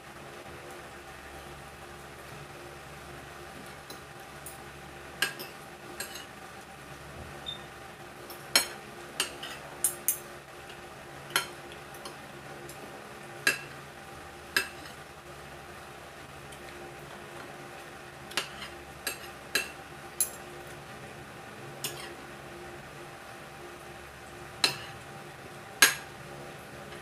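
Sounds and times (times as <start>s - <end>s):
faint steady hum: 0.0s - 27.0s
cutlery clinking on a plate: 5.2s - 6.3s, 8.6s - 10.2s, 18.3s - 20.4s, 24.6s - 25.0s.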